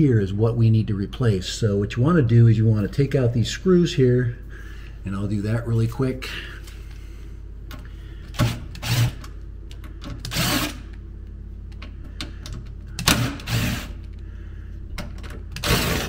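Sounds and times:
cordless drill whirring: 0:08.4 - 0:09.2, 0:10.2 - 0:10.9, 0:13.1 - 0:14.0, 0:15.6 - 0:16.0.

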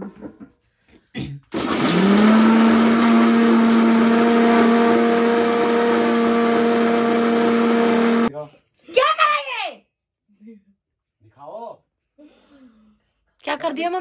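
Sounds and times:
mixer grinder motor whine: 0:01.5 - 0:08.3.

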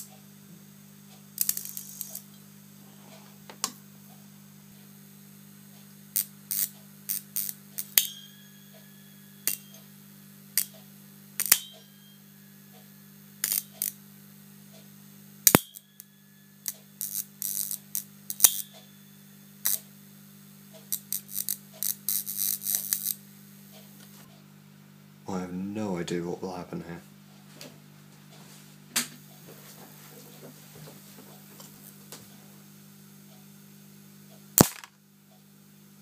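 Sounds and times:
steady low hum: 0:00.0 - 0:36.0
high-voltage arcs snapping: 0:01.4 - 0:02.4, 0:06.0 - 0:08.2, 0:09.4 - 0:09.9, 0:10.5 - 0:10.8, 0:11.4 - 0:11.9, 0:13.4 - 0:14.8, 0:15.4 - 0:18.8, 0:19.6 - 0:20.0, 0:20.6 - 0:23.3, 0:34.6 - 0:35.0.

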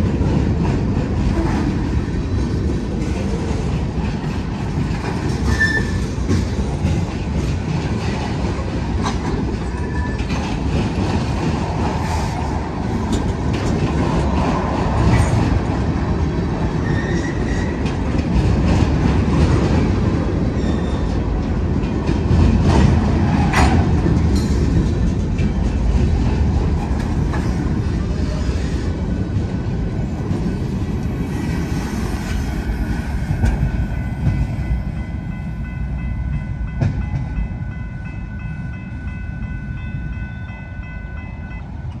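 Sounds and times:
wheels clacking over rail joints: 0:00.0 - 0:37.4
freight train rumbling past: 0:00.0 - 0:42.0
high wheel squeal: 0:05.4 - 0:06.0, 0:16.8 - 0:17.8, 0:20.6 - 0:21.2.

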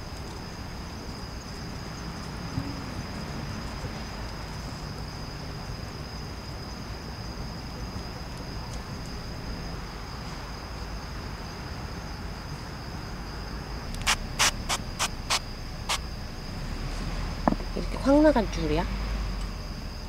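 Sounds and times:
crickets chirring: 0:00.0 - 0:20.0
sharp clicks: 0:13.9 - 0:16.0.

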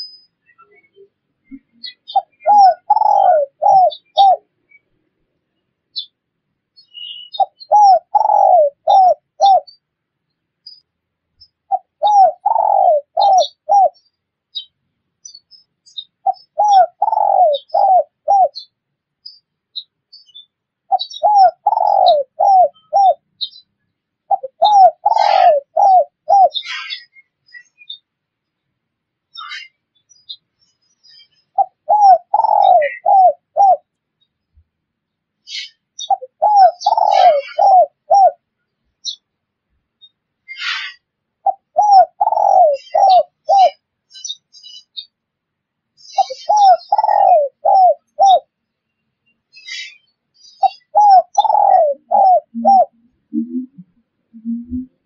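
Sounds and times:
small birds chirping: 0:00.0 - 0:55.0
dove cooing: 0:01.8 - 0:04.5, 0:07.3 - 0:09.8, 0:11.7 - 0:14.0, 0:16.2 - 0:18.7, 0:20.9 - 0:23.2, 0:24.3 - 0:27.0, 0:31.5 - 0:33.9, 0:35.6 - 0:38.4, 0:40.6 - 0:43.8, 0:46.1 - 0:48.5, 0:50.6 - 0:55.0.

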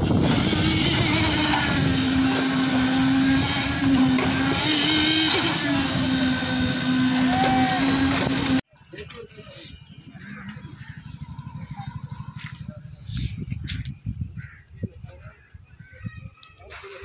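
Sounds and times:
concrete mixer engine running: 0:00.0 - 0:08.6, 0:10.2 - 0:13.5.

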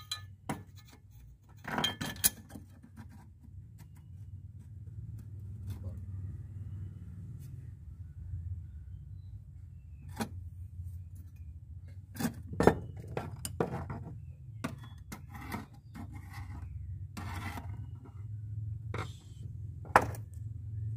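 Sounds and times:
metal plate clinking and scraping: 0:00.0 - 0:01.0, 0:01.6 - 0:02.7.

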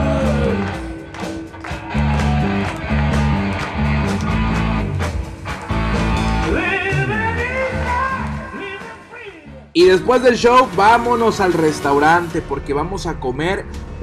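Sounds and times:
electric guitars: 0:00.0 - 0:09.7
bass guitar: 0:00.0 - 0:14.0.

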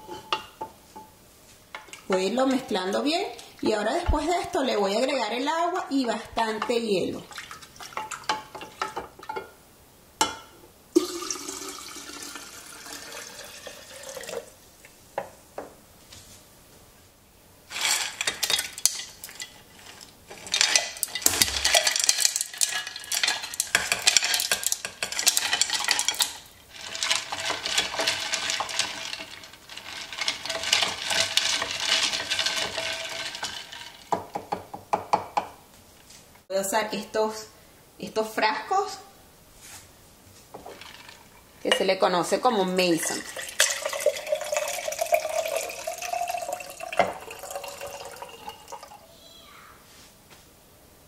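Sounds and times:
water pouring into glass pitcher: 0:07.2 - 0:08.4, 0:11.0 - 0:14.6, 0:20.3 - 0:34.2, 0:40.6 - 0:41.5, 0:42.8 - 0:49.0
ice cubes clattering: 0:17.7 - 0:34.4, 0:40.6 - 0:41.9, 0:42.8 - 0:49.0
spoon stirring ice clinking glass: 0:17.7 - 0:34.4, 0:42.8 - 0:49.0.

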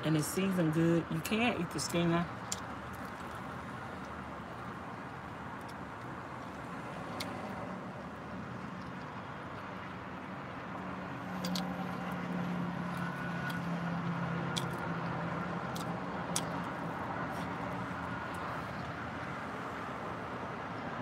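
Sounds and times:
person chewing chicken: 0:14.6 - 0:14.8.

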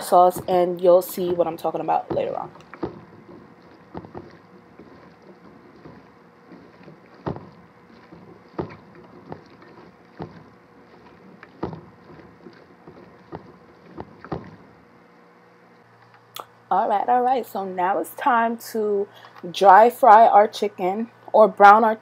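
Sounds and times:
soft squelching: 0:00.0 - 0:16.4.

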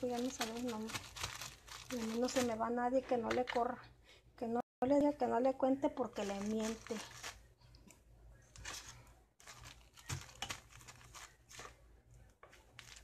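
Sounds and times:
plastic bag crinkling: 0:00.0 - 0:02.7, 0:06.2 - 0:07.5, 0:08.6 - 0:11.8, 0:12.5 - 0:13.0.

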